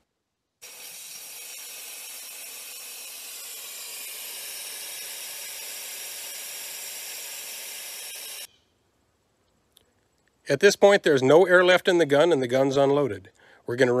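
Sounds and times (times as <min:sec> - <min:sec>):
compressed air hissing: 0:00.6 - 0:08.5.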